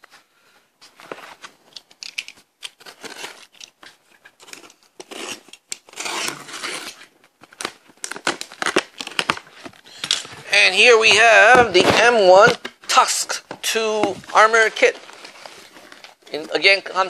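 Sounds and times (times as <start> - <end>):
knife cutting packing tape: 1.8 - 10.3.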